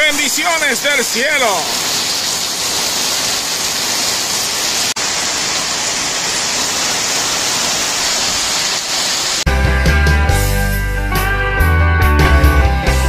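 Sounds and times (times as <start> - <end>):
heavy rain hissing: 0.0 - 9.5.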